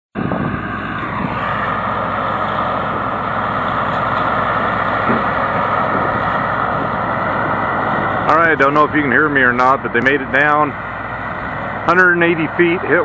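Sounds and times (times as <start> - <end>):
drilling rig running: 0.2 - 13.0.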